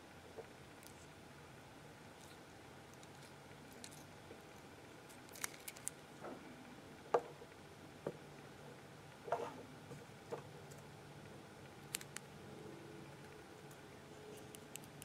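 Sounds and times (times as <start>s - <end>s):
faint low hum: 0.0s - 15.0s
thread wrapping clicks and ticks: 5.1s - 6.0s.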